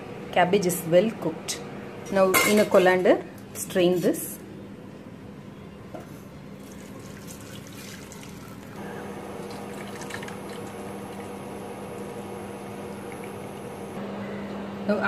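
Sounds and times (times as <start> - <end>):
water pouring through colander: 6.6 - 8.8, 9.4 - 11.3
low hum: 8.8 - 15.0.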